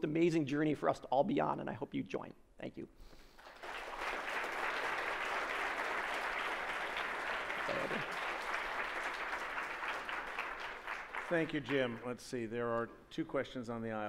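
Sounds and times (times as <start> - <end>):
audience applauding: 3.4 - 12.2.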